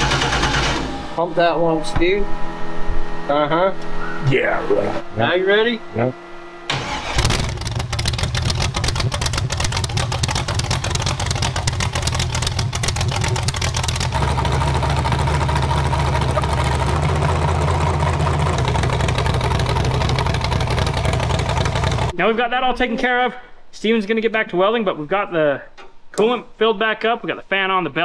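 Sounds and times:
car engine idling roughly: 6.7s - 22.1s.

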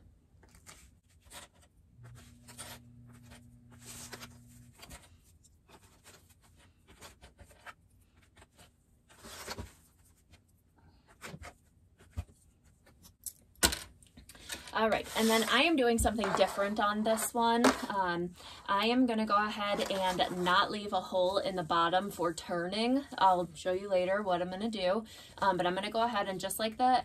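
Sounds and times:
low steady hum: 0.0s - 7.2s
canvas rustling and scraping: 14.8s - 17.6s.

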